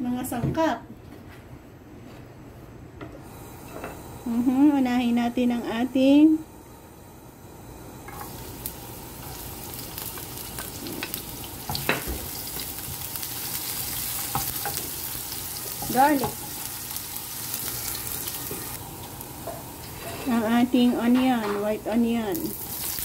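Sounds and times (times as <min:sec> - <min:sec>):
garlic sizzling in hot oil: 0:08.0 - 0:23.0.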